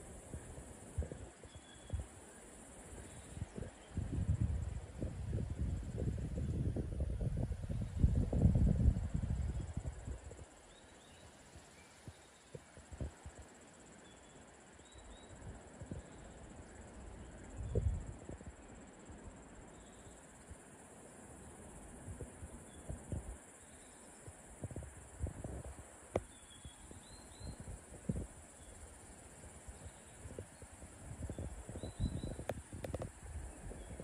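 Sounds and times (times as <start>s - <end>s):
wind buffeting microphone: 0.1s - 2.1s, 2.9s - 10.4s, 17.5s - 18.5s, 22.1s - 23.4s, 24.3s - 28.5s, 29.4s - 34.0s.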